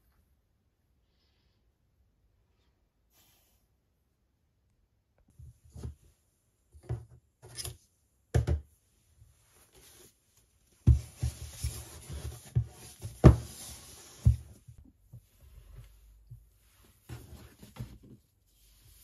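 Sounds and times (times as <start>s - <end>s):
cardboard box rustling and sliding: 10.9s - 14.8s.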